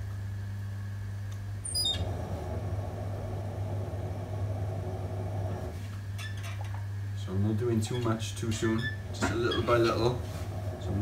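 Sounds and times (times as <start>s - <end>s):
potter's wheel humming: 0.0s - 11.0s
high squeak: 8.0s - 10.0s.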